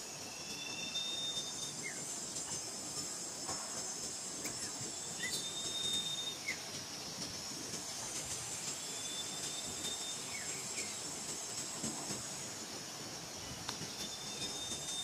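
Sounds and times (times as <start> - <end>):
thin whistle-like tone: 0.0 - 3.8, 4.4 - 6.6, 8.6 - 11.0, 13.9 - 15.0
insect chorus drone: 0.0 - 15.0.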